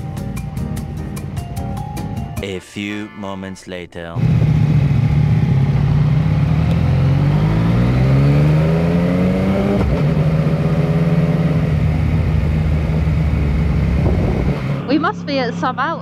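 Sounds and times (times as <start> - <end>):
motorcycle engine accelerating: 4.2 - 16.0.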